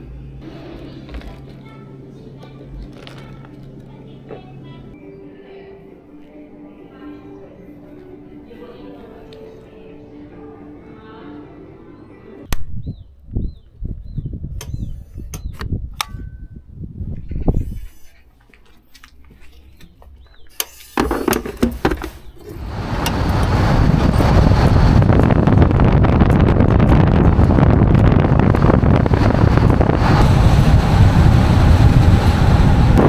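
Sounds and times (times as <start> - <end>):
wind buffeting microphone: 12.6 - 18.0, 22.4 - 33.0.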